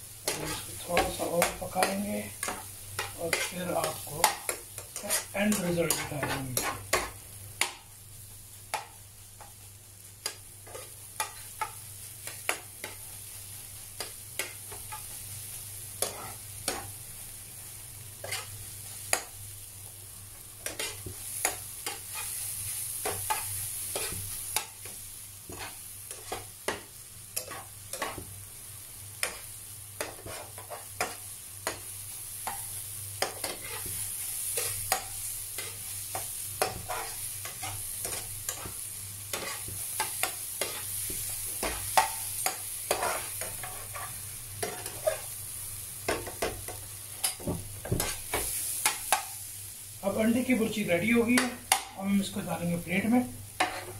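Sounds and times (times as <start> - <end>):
eggs sizzling in a frying pan: 0.0 - 53.9
spatula scraping and tapping pan: 0.2 - 7.8, 8.7 - 13.1, 14.0 - 15.2, 16.0 - 17.0, 18.2 - 19.4, 20.6 - 22.4, 23.0 - 28.3, 29.2 - 45.3, 46.0 - 49.4, 51.3 - 52.0, 53.5 - 53.9.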